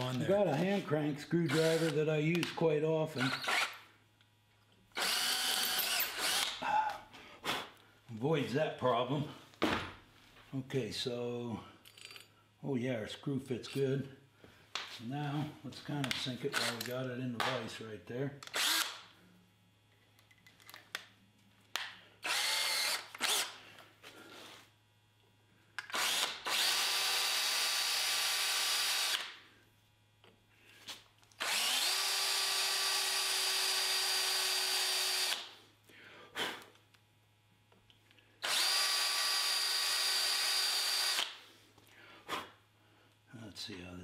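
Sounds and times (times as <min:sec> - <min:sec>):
cordless drill whine: 0:01.5 - 0:02.0, 0:03.2 - 0:03.8, 0:05.0 - 0:06.6, 0:18.5 - 0:19.0, 0:22.2 - 0:23.6, 0:25.9 - 0:29.3, 0:31.4 - 0:35.5, 0:38.4 - 0:41.3.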